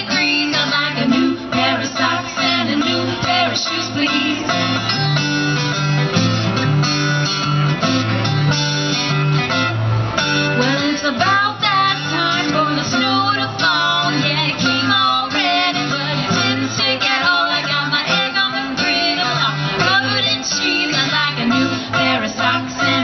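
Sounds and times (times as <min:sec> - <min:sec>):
woman singing: 0:00.0 - 0:04.9, 0:10.6 - 0:23.0
acoustic bluegrass band playing: 0:00.0 - 0:23.0
banjo picking: 0:00.0 - 0:23.0.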